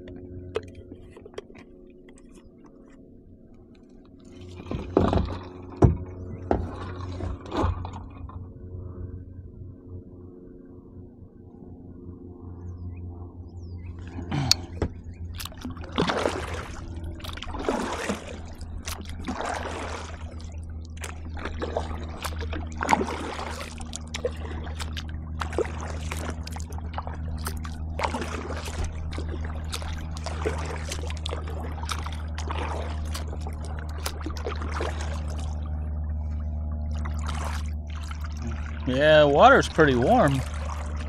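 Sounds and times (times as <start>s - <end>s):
steady low rumble: 0.0s - 41.0s
kayak paddle splashing: 4.2s - 8.8s, 14.0s - 41.0s.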